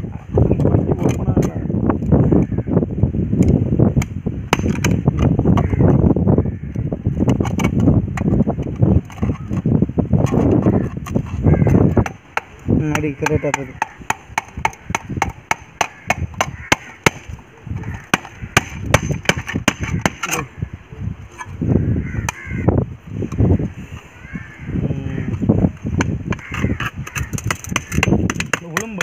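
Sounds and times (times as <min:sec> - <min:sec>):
chisel knocking through can lid: 0:10.2 - 0:20.4, 0:26.0 - 0:29.0.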